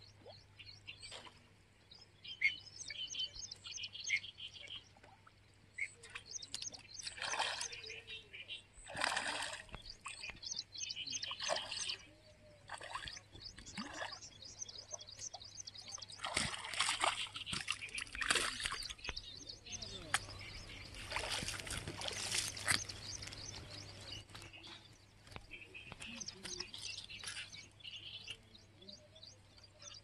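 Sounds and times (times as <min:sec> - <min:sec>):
fish splashing at water surface: 0:07.1 - 0:07.8, 0:08.8 - 0:09.8, 0:16.2 - 0:19.1, 0:21.0 - 0:23.0.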